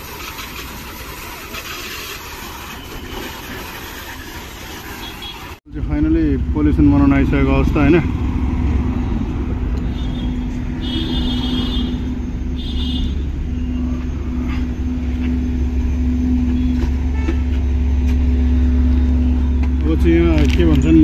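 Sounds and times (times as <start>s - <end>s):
car engine running: 5.7s - 21.0s.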